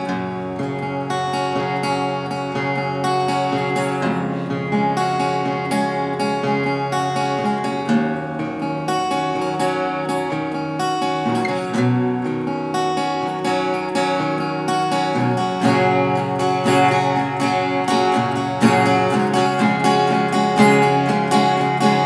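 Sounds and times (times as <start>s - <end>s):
fingerpicked acoustic guitar: 0.0s - 22.0s.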